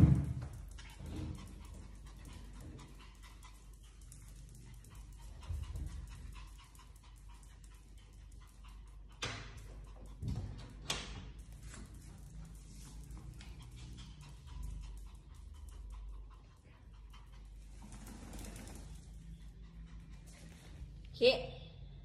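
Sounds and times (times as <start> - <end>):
small dog panting: 0.6 - 21.1.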